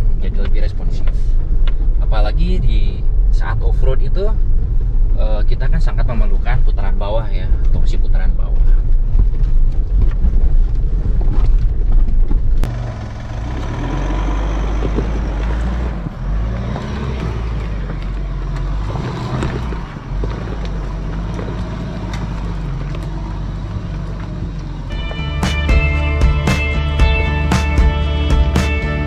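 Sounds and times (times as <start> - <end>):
diesel engine running: 12.4 - 29.0.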